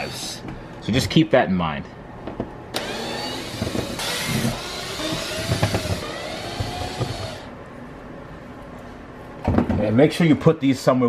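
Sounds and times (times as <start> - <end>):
power drill running: 2.8 - 7.5.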